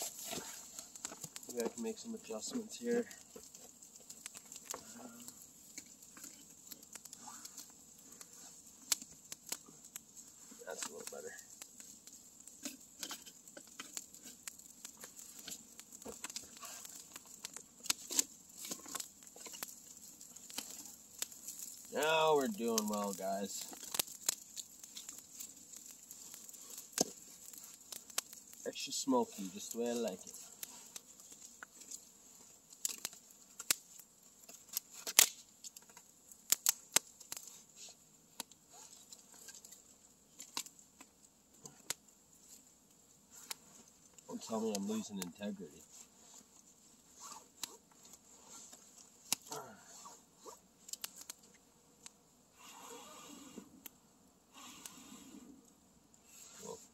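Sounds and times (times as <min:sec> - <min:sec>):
campfire crackling: 0:00.0 - 0:56.9
logs poked with a stick: 0:02.4 - 0:28.8.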